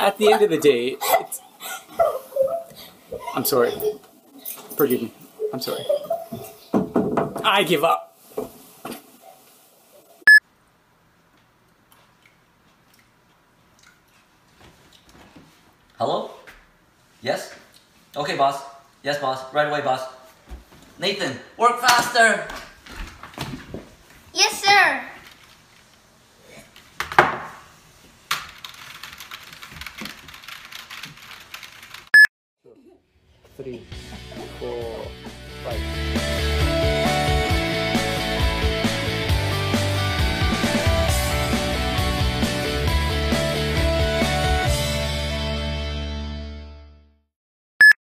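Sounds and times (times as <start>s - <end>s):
fast typing on keyboard: 28.5s - 32.2s.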